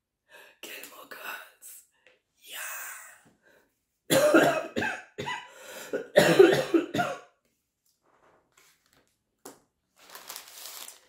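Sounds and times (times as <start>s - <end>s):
woman coughing into her hand: 4.1s - 5.4s, 6.0s - 7.2s.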